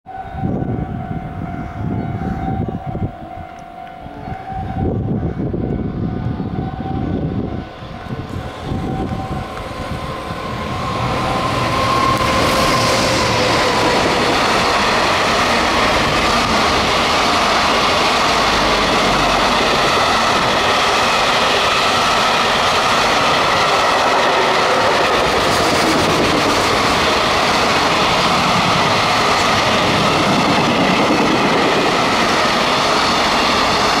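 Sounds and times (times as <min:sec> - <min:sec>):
electric locomotive passing: 0:00.1 - 0:34.0
train wheels clattering on rails: 0:08.4 - 0:34.0.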